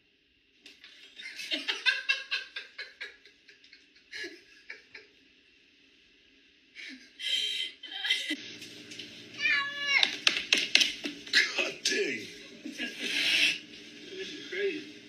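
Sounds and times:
person laughing in breathy bursts: 4.1s - 5.1s.

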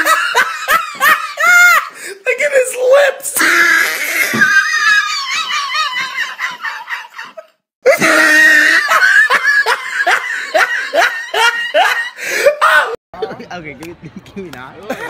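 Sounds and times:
loud high-pitched laughter: 3.4s - 13.0s.

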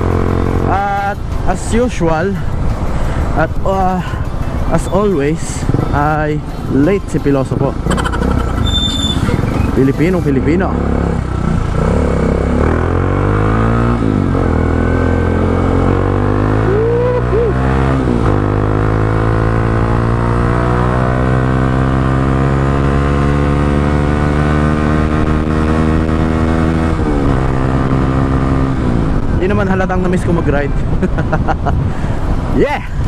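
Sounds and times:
motorcycle engine accelerating: 0.0s - 1.0s, 7.5s - 29.5s.

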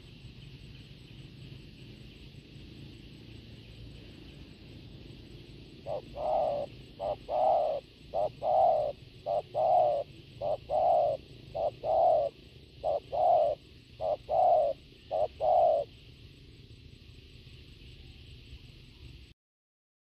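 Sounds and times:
dove cooing: 3.7s - 16.0s.

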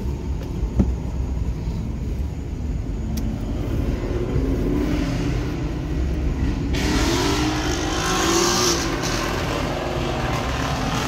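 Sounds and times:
car engine accelerating: 3.1s - 11.0s.

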